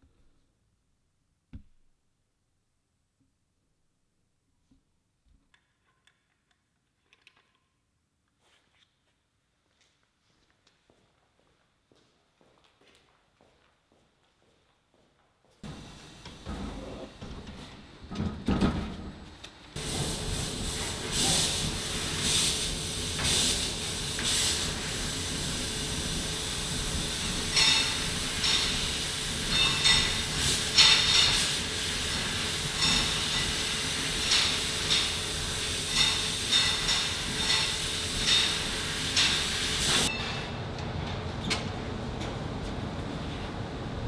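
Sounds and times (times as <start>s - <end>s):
laser cutting machine hissing: 19.8s - 40.1s.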